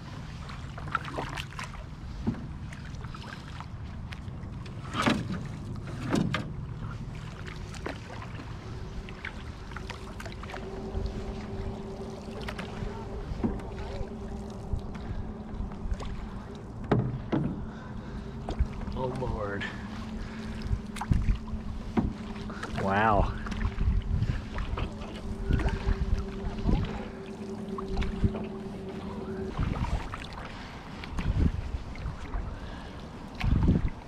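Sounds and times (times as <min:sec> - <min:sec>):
paddle strokes and splashes: 0:00.0 - 0:34.0
wind on microphone: 0:08.4 - 0:34.0
light knocks on canoe: 0:16.8 - 0:17.7, 0:21.9 - 0:22.2.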